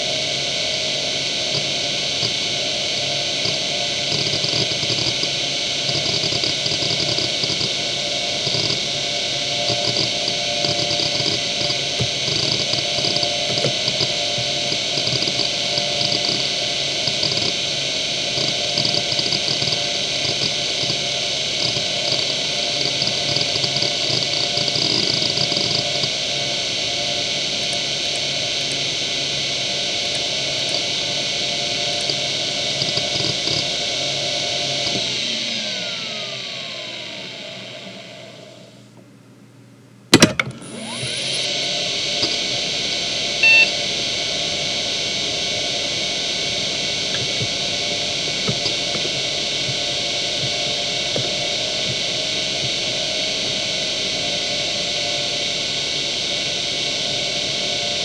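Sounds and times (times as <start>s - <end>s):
hard drive spinning whine: 0.0s - 58.0s
hard drive heads seeking chatter: 0.8s - 35.6s, 43.2s - 55.3s
short electronic beep: 43.4s - 43.8s.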